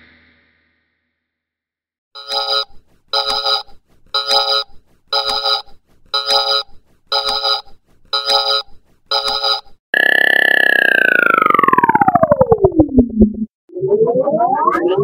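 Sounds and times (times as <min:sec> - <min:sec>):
electronic ringing tone: 0:02.2 - 0:12.8.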